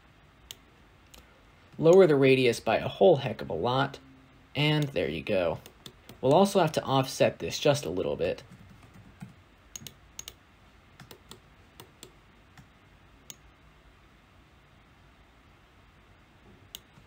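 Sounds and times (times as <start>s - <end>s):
keyboard typing: 8.4s - 10.4s, 11.0s - 12.7s
mouse clicks: 9.7s - 10.4s, 11.0s - 13.4s.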